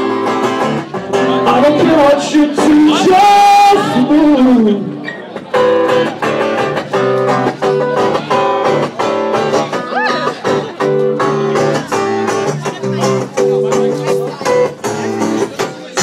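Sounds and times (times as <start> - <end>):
guitar strumming chords: 0.0 - 16.0
person singing: 1.1 - 5.0.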